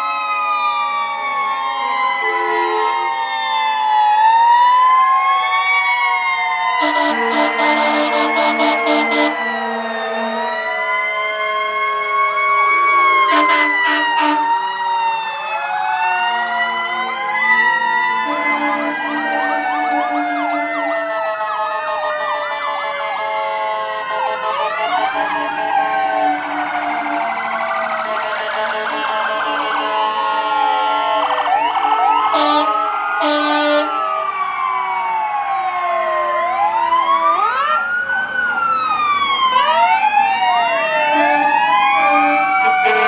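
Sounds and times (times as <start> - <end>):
fire engine sirens wailing: 0.0 - 43.0
low horn blasts: 6.8 - 10.4, 41.1 - 43.0.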